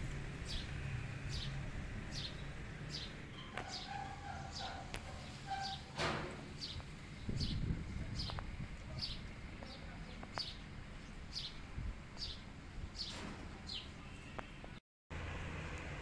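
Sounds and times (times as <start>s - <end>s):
small bird chirping: 0.4s - 5.9s.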